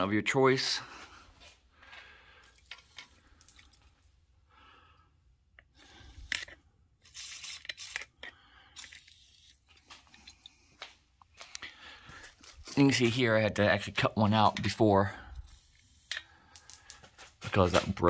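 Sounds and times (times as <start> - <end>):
aerosol can spraying: 7.0 - 8.1.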